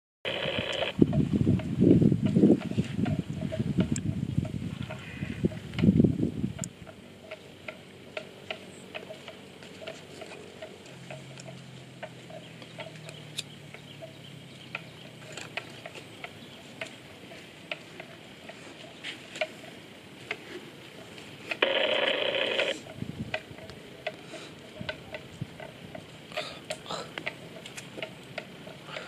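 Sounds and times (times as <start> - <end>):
noisy burst: 0.3 - 2.2, 21.4 - 23.2.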